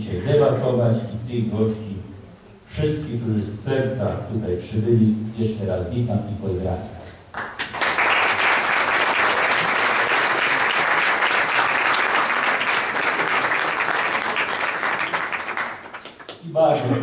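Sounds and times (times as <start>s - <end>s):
audience applauding: 7.3s - 17.0s.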